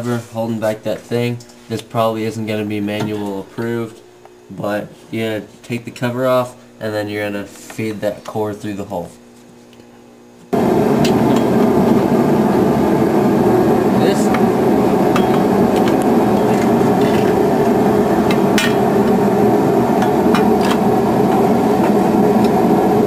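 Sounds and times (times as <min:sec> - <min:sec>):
loud steady drone: 0:10.5 - 0:23.0.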